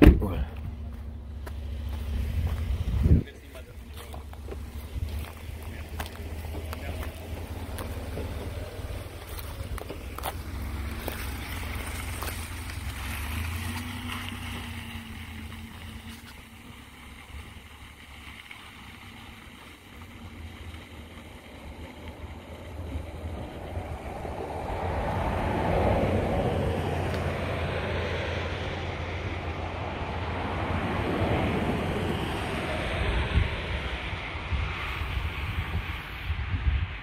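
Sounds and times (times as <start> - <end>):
pickup truck engine rumbling: 0.0 - 37.0
wind rumble on microphone: 1.9 - 10.4, 21.7 - 37.0.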